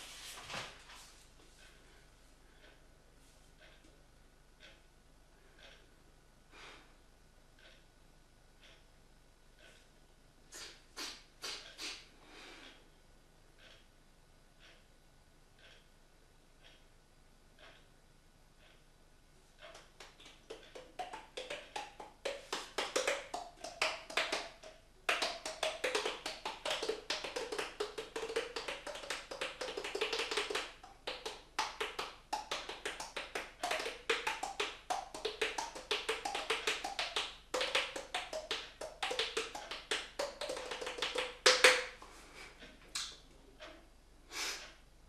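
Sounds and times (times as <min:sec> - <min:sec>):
fingers drumming on cheek: 0:19.7 - 0:42.0.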